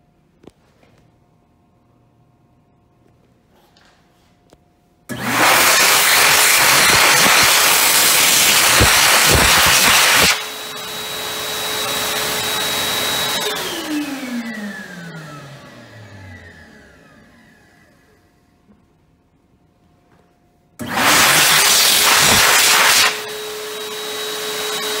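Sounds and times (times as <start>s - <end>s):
hand dryer motor whine: 5.1s - 18.3s, 20.8s - 25.0s.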